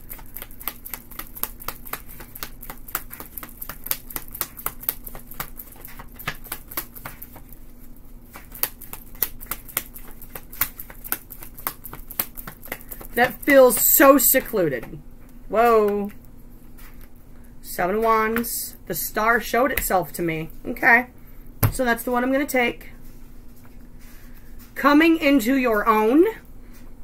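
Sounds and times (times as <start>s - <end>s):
cards being shuffled: 0.0s - 7.6s, 8.3s - 14.6s.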